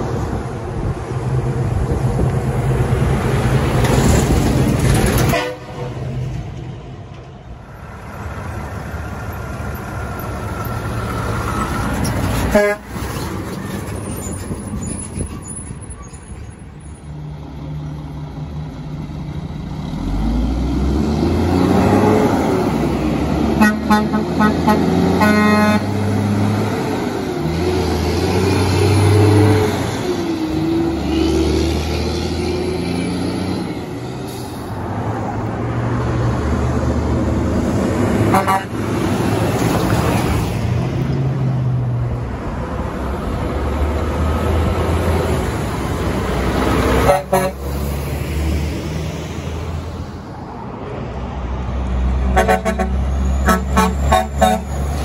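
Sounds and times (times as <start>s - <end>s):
trucks passing: 0.0s - 55.0s
truck air horns honking: 5.2s - 6.1s, 12.4s - 13.1s, 23.5s - 26.1s, 38.2s - 38.8s, 47.0s - 47.8s, 52.3s - 55.0s.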